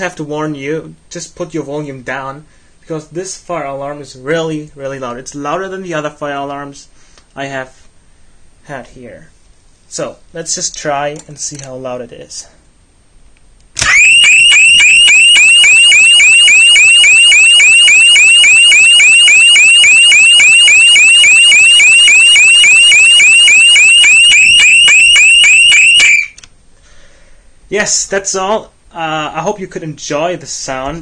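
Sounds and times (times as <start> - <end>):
fire alarm rising sweep tone: 13.8 - 26.4.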